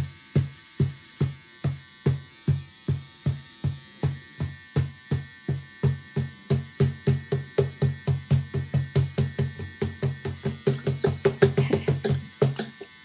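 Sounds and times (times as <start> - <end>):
steady buzzing hum: 0.0 - 13.0
cajon bass strokes: 8.2 - 12.8.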